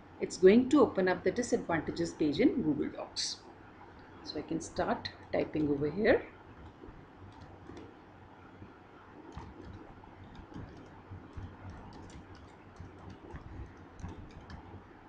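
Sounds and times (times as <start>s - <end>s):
low steady hum: 0.0s - 15.0s
faint keyboard typing: 5.4s - 8.0s, 8.6s - 15.0s.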